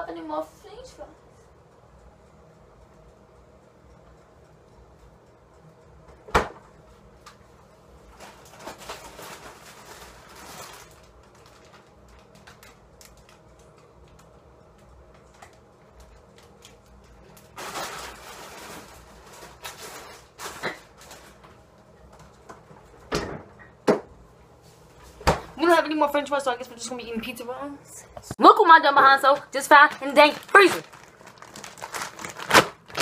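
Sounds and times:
plastic bag crinkling: 8.1 - 14.3, 16.3 - 21.5, 29.2 - 33.0.

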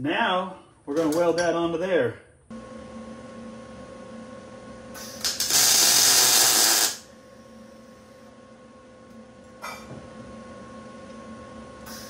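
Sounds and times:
steady hum: 0.0 - 12.0
arc sputters: 5.0 - 7.1
welding arc crackle: 5.0 - 7.1.

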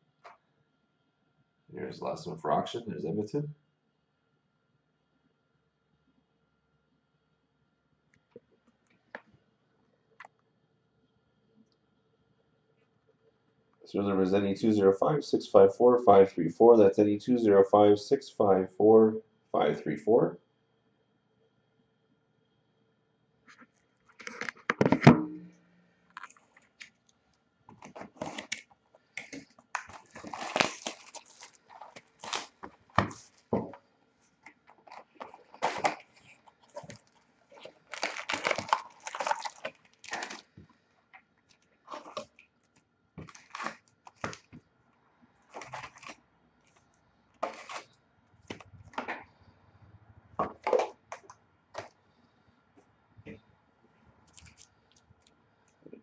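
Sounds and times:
foil packs crinkling: 27.7 - 33.6, 34.6 - 40.7, 43.2 - 44.6, 45.4 - 46.2, 47.4 - 49.2.

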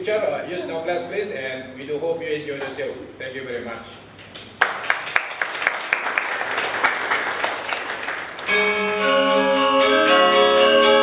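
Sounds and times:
audience applause: 4.6 - 9.0
bronze metallophone ensemble: 8.5 - 11.0.

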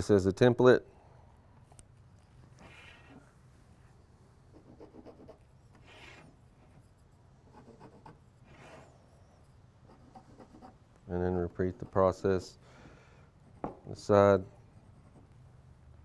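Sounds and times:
marker scratching on wood: 2.0 - 12.6, 14.4 - 15.4.

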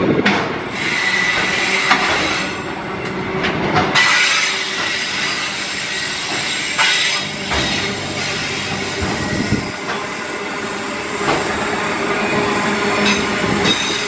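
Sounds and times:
train wagons rumbling on rails: 0.0 - 14.0
high wheel squeal: 0.7 - 2.8, 4.0 - 11.2.

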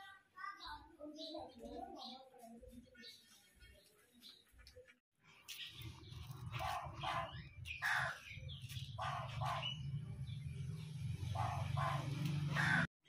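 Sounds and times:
crow cawing: 12.5 - 12.9.

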